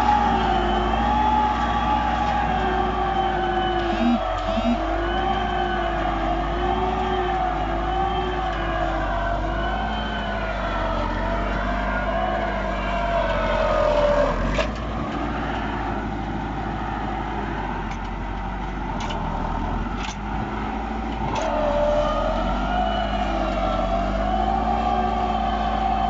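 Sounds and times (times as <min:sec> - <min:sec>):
tractor diesel engine under load: 0:00.0 - 0:26.0
high whine: 0:03.1 - 0:06.0.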